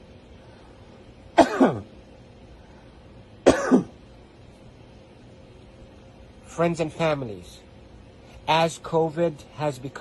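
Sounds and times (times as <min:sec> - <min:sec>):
man coughing: 0:01.4 - 0:01.9, 0:03.4 - 0:04.0.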